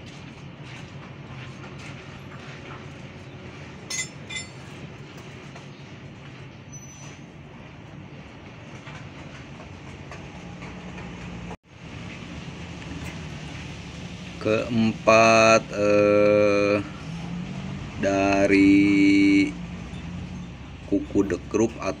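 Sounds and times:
metallic clinks of steel tool: 0:03.9 - 0:04.6.

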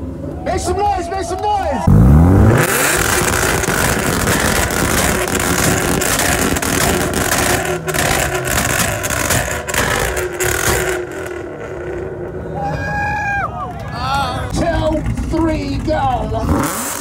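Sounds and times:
exhaust pops and bangs: 0:01.9 - 0:12.0.

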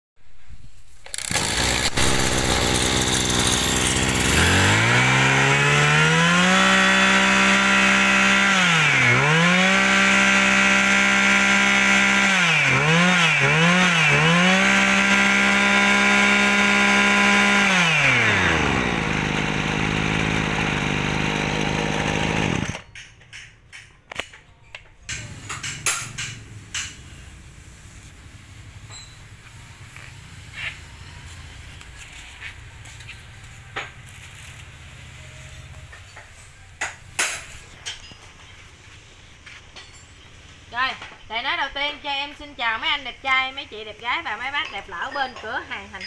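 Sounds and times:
two-stroke brush cutter engine revving: 0:01.0 - 0:22.8.

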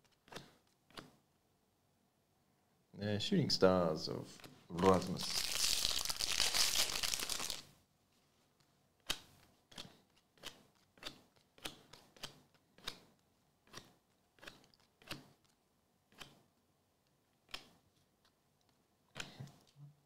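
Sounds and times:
trading cards clicking: 0:04.8 - 0:07.6
foil wrapper crinkling: 0:04.8 - 0:07.7.

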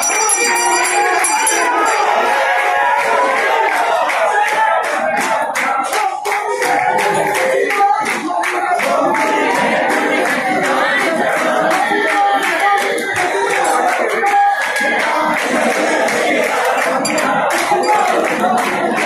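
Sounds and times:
hand-clapping: 0:00.0 - 0:02.2, 0:03.0 - 0:19.0
group singing a chant: 0:00.0 - 0:19.0.

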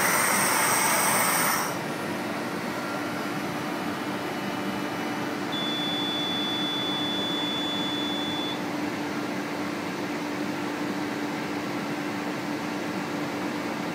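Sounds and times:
extraction fan humming: 0:00.0 - 0:13.9
long high beep: 0:05.5 - 0:08.6.

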